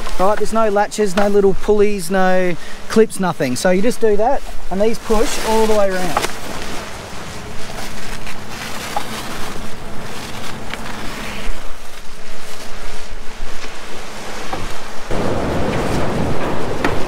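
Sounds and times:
wind blowing on microphone: 0:00.0 - 0:17.0.

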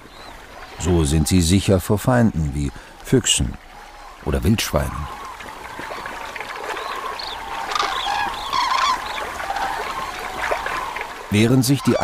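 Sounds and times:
water splashing and trickling: 0:00.0 - 0:12.0
cranes calling: 0:05.0 - 0:12.0
wings flapping: 0:05.1 - 0:11.2.

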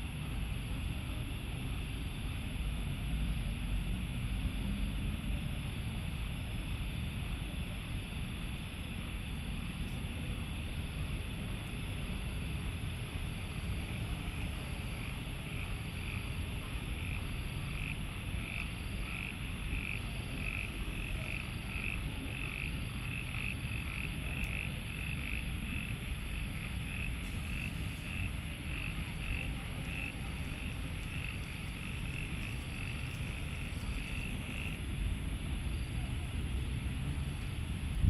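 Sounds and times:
low steady rumble: 0:24.2 - 0:38.0
frog calling: 0:26.4 - 0:34.9.

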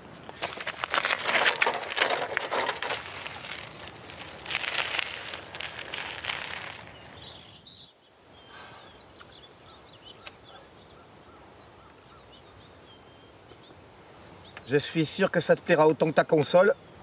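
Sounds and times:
bicycle tyres on gravel: 0:00.0 - 0:07.8
small birds chirping: 0:02.9 - 0:17.0.

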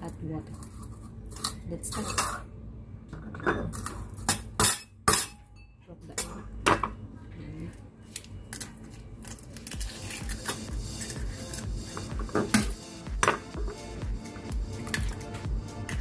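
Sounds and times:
spoon clinking in metal bowl: 0:03.4 - 0:06.3.

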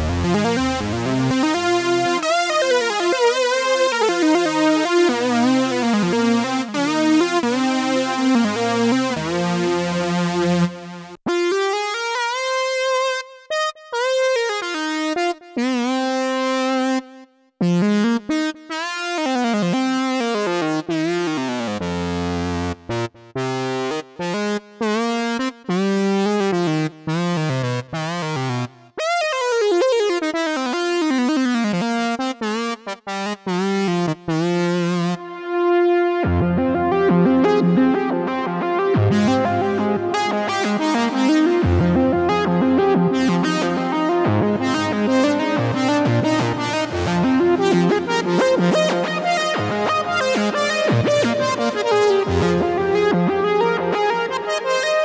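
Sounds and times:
deep synth bass: 0:00.0 - 0:02.1
polysynth melody with sliding notes: 0:00.0 - 0:17.0, 0:19.0 - 0:55.0.

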